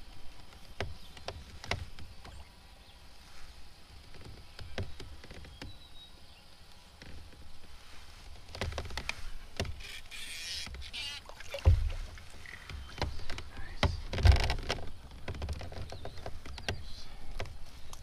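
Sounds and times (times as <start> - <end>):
water splashing: 10.8 - 13.4
thumps on kayak hull: 11.4 - 16.8.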